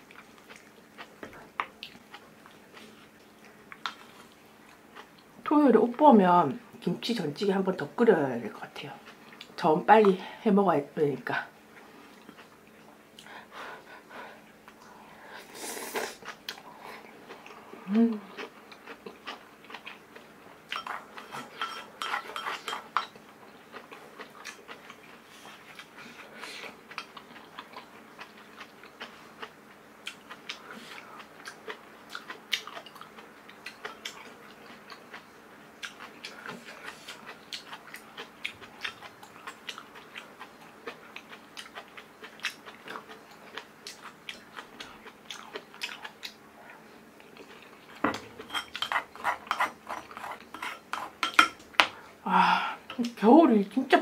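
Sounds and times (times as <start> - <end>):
chewing food: 0.0 - 5.5, 11.7 - 13.5, 16.1 - 51.9.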